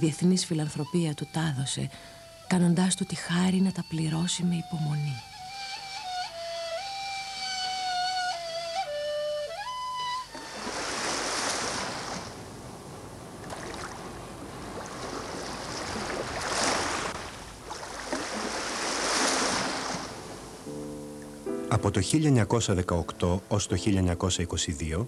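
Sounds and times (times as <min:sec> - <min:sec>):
solo flute melody: 0:00.6 - 0:11.5
sea waves breaking: 0:10.2 - 0:21.4.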